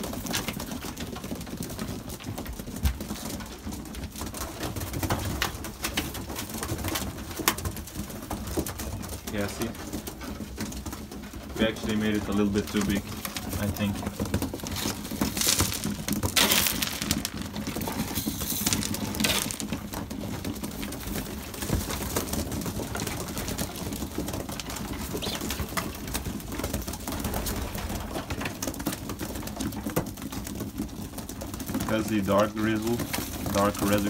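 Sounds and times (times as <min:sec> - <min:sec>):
clicks and scuffles of pigeons: 0:00.0 - 0:34.0
pigeon wings flapping: 0:00.0 - 0:34.0
pigeons cooing: 0:23.0 - 0:26.3.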